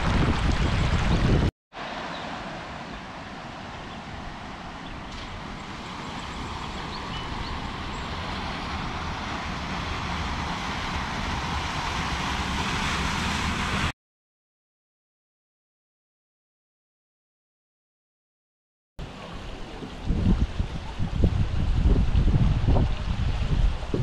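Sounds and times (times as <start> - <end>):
creek rushing: 0.0 - 13.9
tyres splashing through water: 0.0 - 13.9
truck engine rumble: 4.4 - 13.9.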